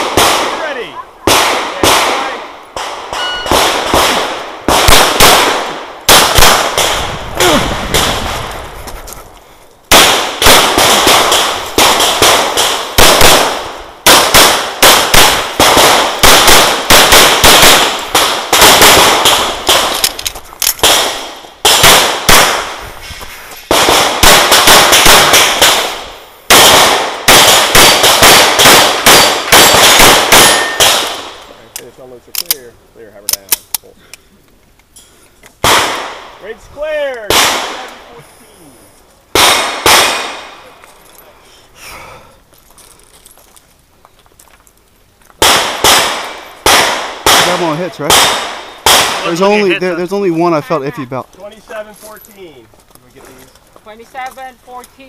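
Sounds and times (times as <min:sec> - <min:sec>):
pistol shots: 0:00.0 - 0:08.5, 0:09.9 - 0:22.8, 0:23.7 - 0:31.4, 0:35.6 - 0:36.3, 0:37.3 - 0:38.0, 0:39.3 - 0:40.6, 0:45.4 - 0:50.4.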